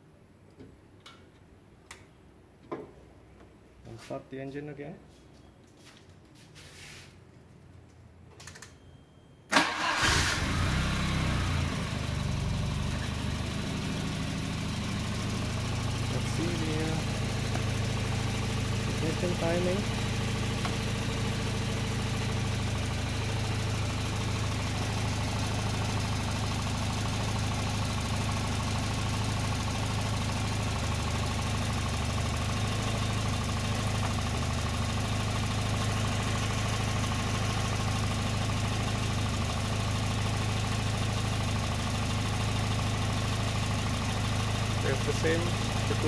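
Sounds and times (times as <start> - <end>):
car engine idling: 9.6 - 46.0.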